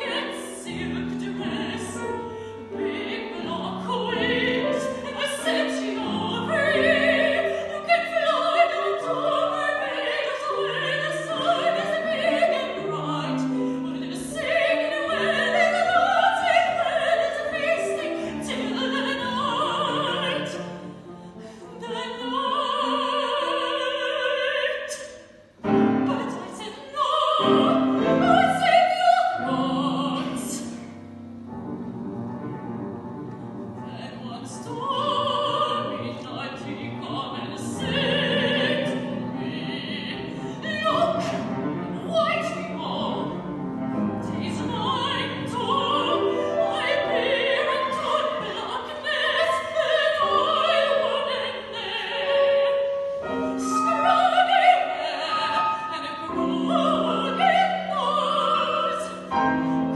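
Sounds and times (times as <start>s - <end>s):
piano accompaniment: 0.0s - 24.2s, 25.5s - 59.9s
woman singing operatic aria: 0.0s - 31.8s, 33.2s - 59.9s.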